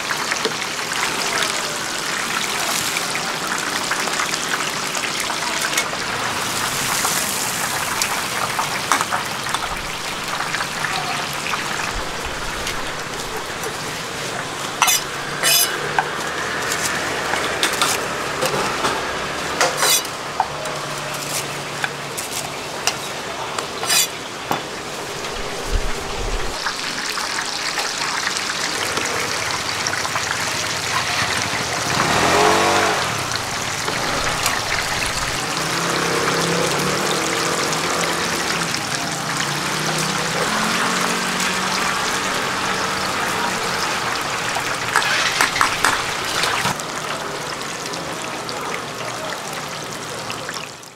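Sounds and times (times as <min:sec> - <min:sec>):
fritters sizzling in oil: 0:00.0 - 0:48.5
metal utensils clinking: 0:14.7 - 0:18.9, 0:19.6 - 0:24.6, 0:44.3 - 0:46.8.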